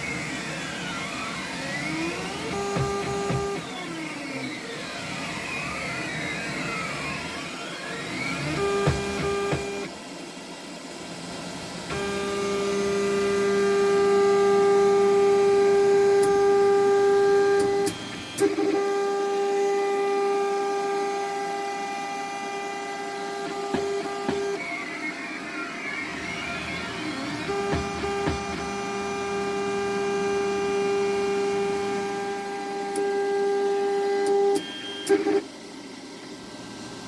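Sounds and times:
stepper motors whining: 0.0s - 10.0s, 11.9s - 35.4s.

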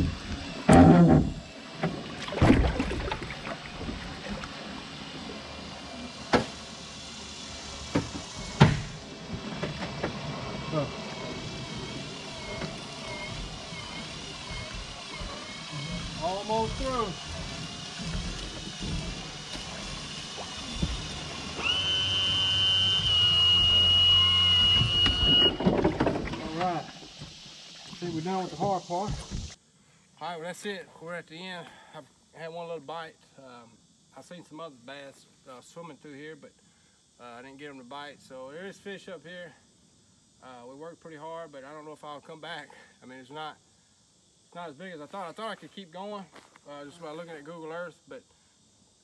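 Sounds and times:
boat moving through water: 1.3s - 7.1s, 8.2s - 22.1s
electric motor whining: 3.2s - 27.2s.

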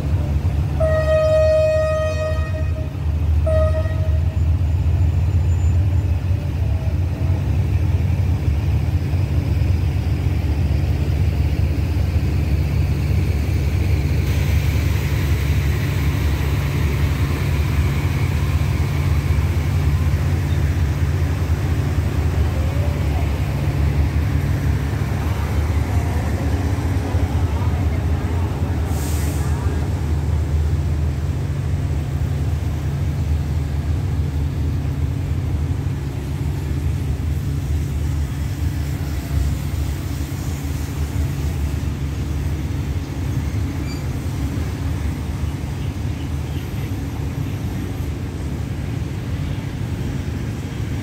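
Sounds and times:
diesel train hum: 0.0s - 51.0s
wheels rushing on rails: 0.0s - 51.0s
train horn toot: 0.8s - 4.6s.

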